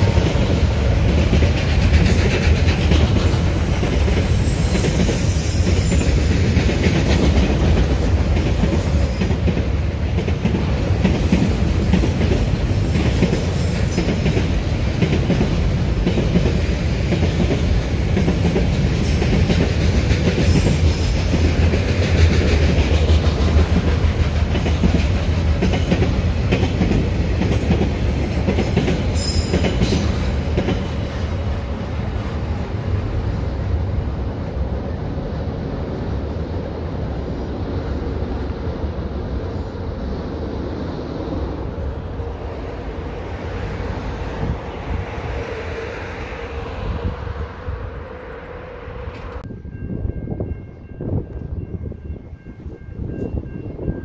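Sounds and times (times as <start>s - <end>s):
train wheels rumbling on rails: 0.0s - 54.0s
wheel squeals: 4.4s - 6.3s.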